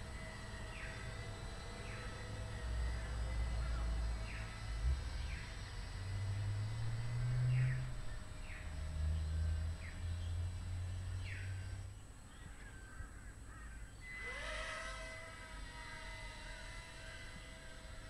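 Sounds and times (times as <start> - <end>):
steady rising tone: 0.0 - 11.7.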